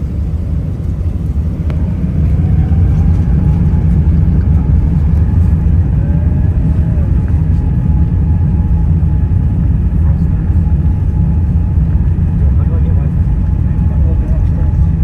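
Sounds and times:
jet engine and wheel rumble: 0.0 - 15.0.

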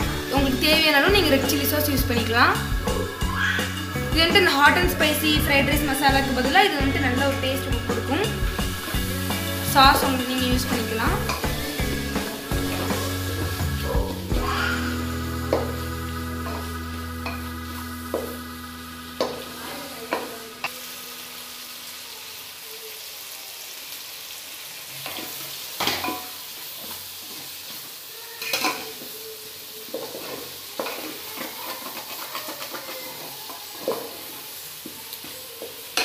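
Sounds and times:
vegetables sizzling in a pot: 0.0 - 36.0
spatula scraping and knocking pot: 10.7 - 13.6.

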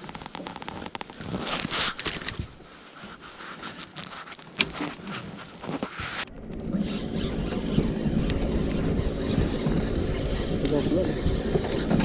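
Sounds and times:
jacket sleeves rustling: 0.0 - 6.3
small clicks and scrapes: 0.0 - 8.5.

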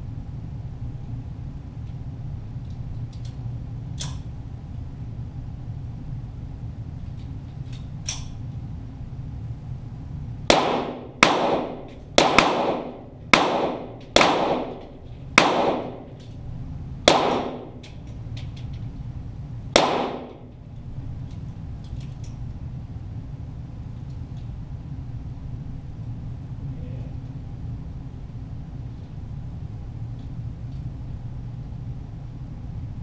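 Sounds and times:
pistol shots with echo: 10.5 - 16.2, 17.1 - 17.8, 19.8 - 20.5.

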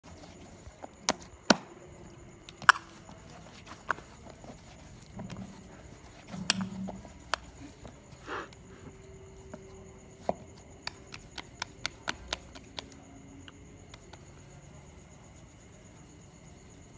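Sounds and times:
dough thuds: 0.0 - 8.1, 10.2 - 13.0.

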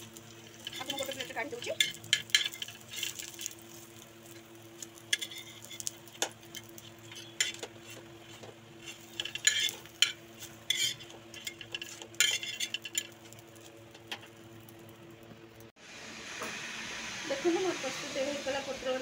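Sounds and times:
oil sizzling: 0.0 - 19.0
metal spatula scraping griddle: 0.5 - 14.2.

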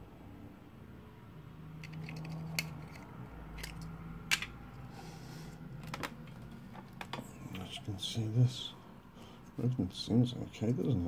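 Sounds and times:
small plastic clicks and scraping: 1.8 - 4.5.

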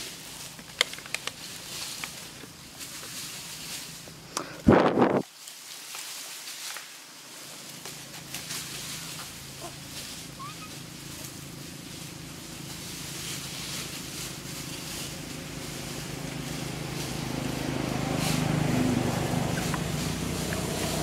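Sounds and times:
motor engine humming: 7.3 - 21.0.

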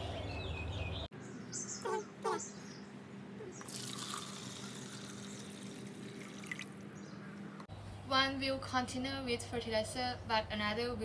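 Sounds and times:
water pouring into plastic bucket: 3.7 - 6.8.

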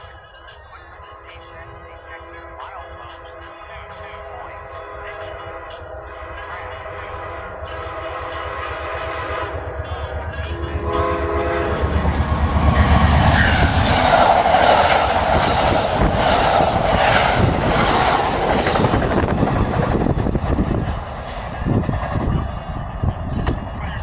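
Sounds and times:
train wheels on rails: 0.0 - 24.0
train horn: 0.9 - 16.6.

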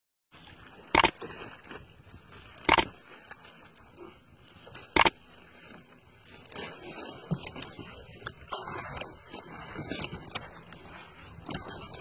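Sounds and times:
mouse double click effects: 2.7 - 2.9.

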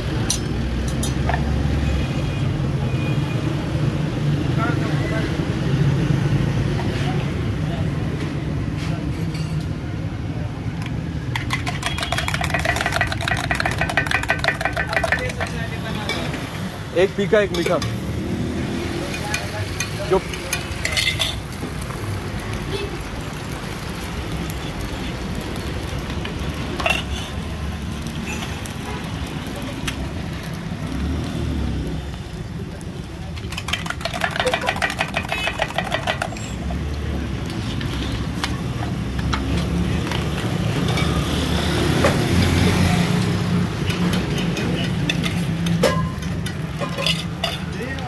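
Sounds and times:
traffic rumble: 0.0 - 48.0
rapid rattling: 11.3 - 15.8, 33.5 - 36.5.

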